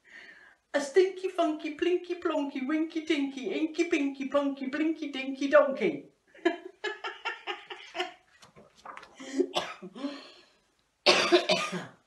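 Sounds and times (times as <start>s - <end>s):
woman laughing: 6.4s - 8.2s
woman coughing: 9.4s - 10.0s, 11.1s - 12.0s.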